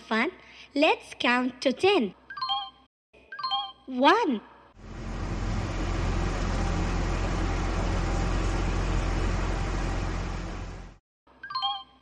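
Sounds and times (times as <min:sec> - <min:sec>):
low engine hum: 0:04.8 - 0:11.0.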